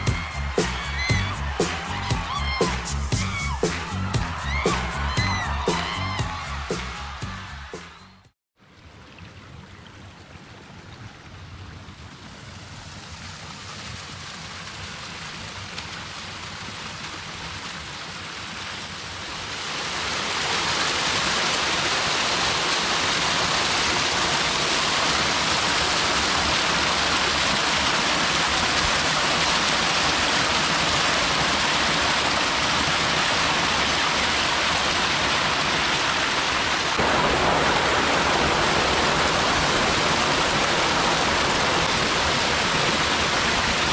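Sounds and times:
stream rushing over rocks: 12.7 - 43.9.

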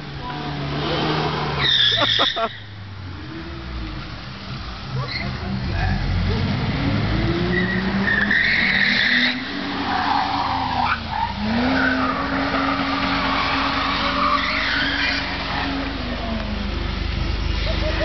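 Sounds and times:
high-revving car engine: 0.0 - 18.0
tyres squealing: 1.0 - 2.7, 7.4 - 16.2.

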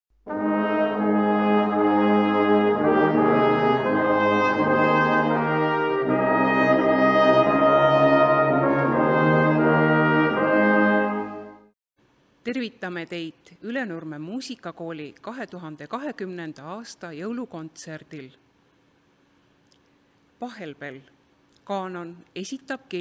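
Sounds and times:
brass playing slow chords: 0.2 - 11.7.

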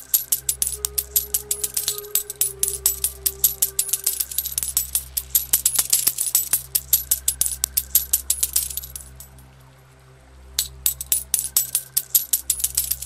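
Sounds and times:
coins clinking: 0.0 - 9.4, 10.6 - 13.0
soft background music: 0.0 - 13.0.

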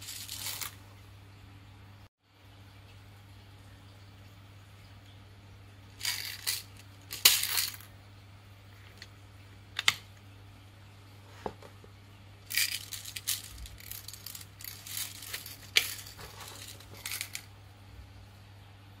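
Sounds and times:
candies clattering: 0.0 - 0.8, 12.5 - 17.5
candy balls rattling into tray: 0.0 - 0.8, 6.0 - 7.9, 12.5 - 17.5.

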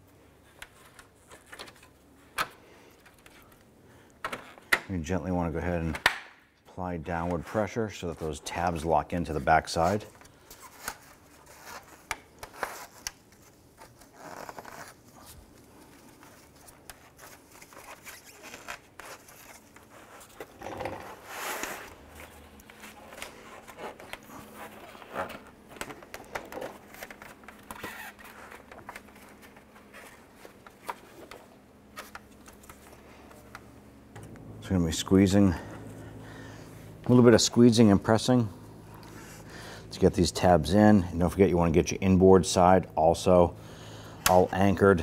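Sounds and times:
plastic parts rubbing and scraping: 9.4 - 33.5.

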